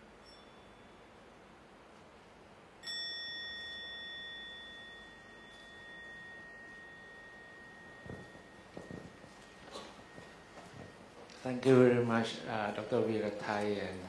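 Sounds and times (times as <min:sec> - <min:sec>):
faint ting: 0:00.0 - 0:01.3, 0:02.8 - 0:12.0
small bell ringing: 0:00.2 - 0:01.2, 0:02.8 - 0:12.4.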